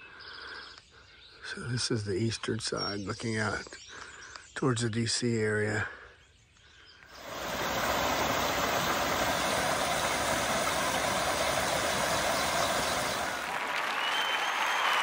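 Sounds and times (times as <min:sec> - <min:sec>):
stream running over rocks: 0:07.1 - 0:13.6.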